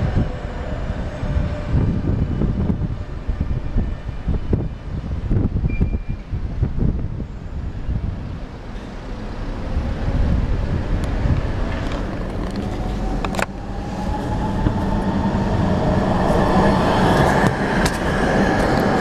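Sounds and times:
street traffic rumble: 0.0s - 19.0s
tram motor whine: 7.2s - 19.0s.

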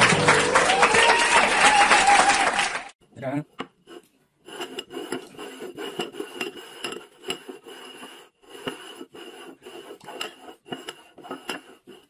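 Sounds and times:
porcelain bowls scraping on wood: 3.4s - 12.0s.

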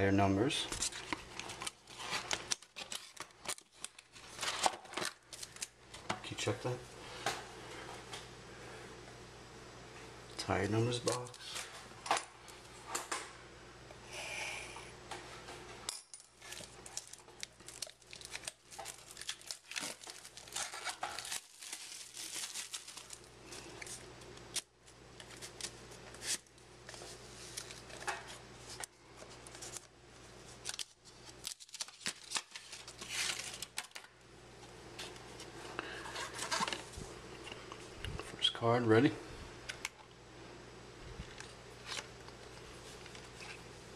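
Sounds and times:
plastic wrap crinkling and tearing: 0.7s - 5.8s, 16.4s - 34.1s.

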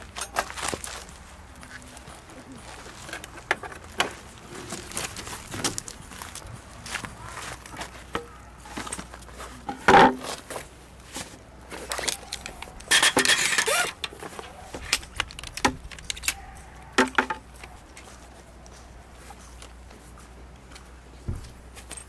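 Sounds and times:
rustling clatter: 0.0s - 20.2s
objects clinking and knocking: 11.7s - 17.6s.

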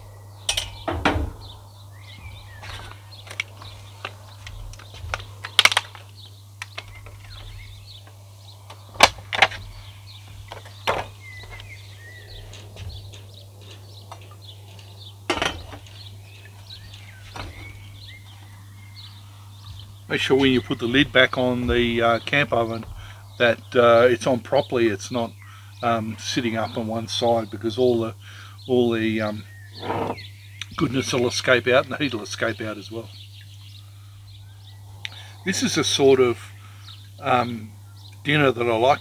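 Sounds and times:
metal pot clanking: 0.5s - 1.5s
faint bird chirps: 33.0s - 39.0s.

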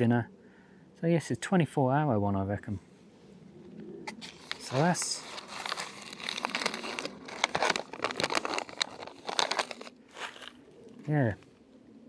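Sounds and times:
foil pouch crinkling: 4.1s - 10.6s.

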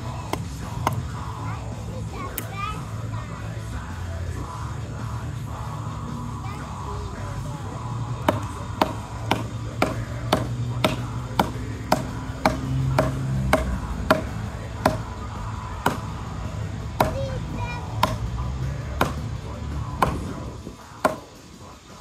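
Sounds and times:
background music: 0.0s - 22.0s
hatchet chopping log: 0.2s - 1.2s, 8.1s - 15.1s, 15.8s - 19.3s, 19.9s - 20.4s, 21.0s - 21.4s.

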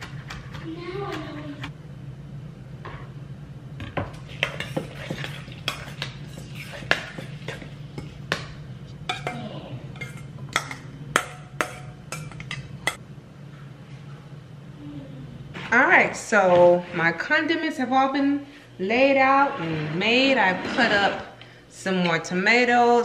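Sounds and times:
steady low hum: 0.0s - 23.0s
utensils clinking and scraping bowls: 3.9s - 13.0s, 18.8s - 22.4s.

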